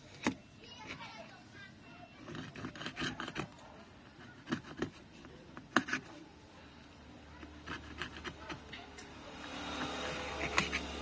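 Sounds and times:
metal tweezers clicking and scraping: 2.2 - 6.1, 7.4 - 11.0.

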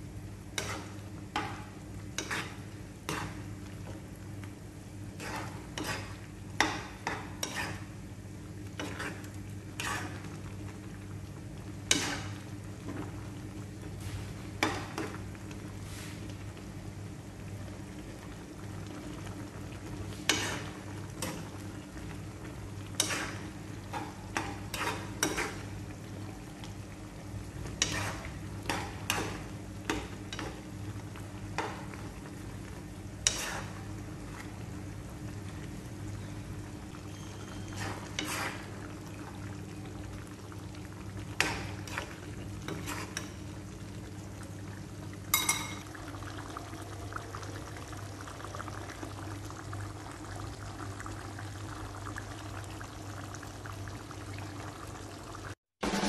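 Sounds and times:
metal utensil scraping pan: 2.2 - 3.4, 7.4 - 7.8, 9.8 - 10.2, 37.2 - 38.7.

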